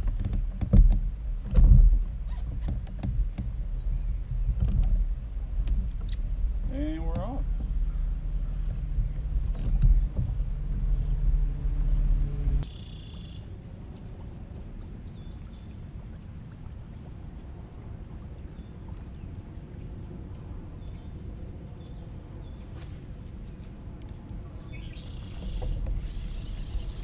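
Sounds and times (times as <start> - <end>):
loud steady low hum: 0.0 - 27.0
faint bird chirps: 12.6 - 13.5, 24.6 - 27.0.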